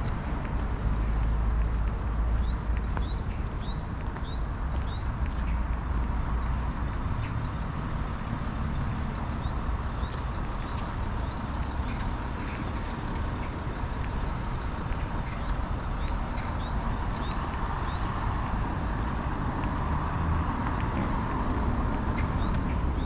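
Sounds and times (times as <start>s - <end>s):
road traffic rumble: 0.0s - 23.0s.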